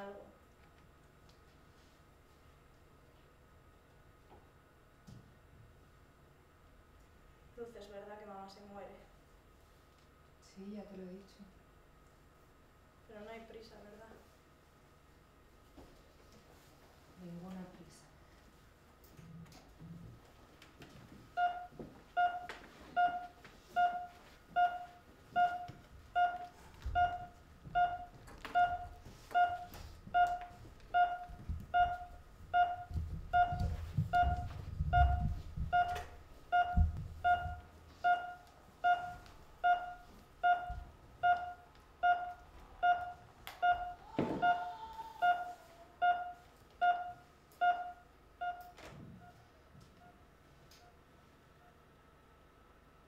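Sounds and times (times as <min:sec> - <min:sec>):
patient monitor beeps: 0:21.4 - 0:49.4
low thumps and rumble: 0:30.1 - 0:37.8.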